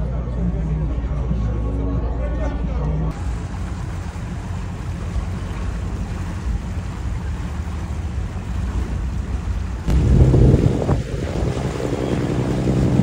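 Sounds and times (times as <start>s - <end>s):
boat rumbling: 0.0s - 13.0s
wind hiss: 3.1s - 13.0s.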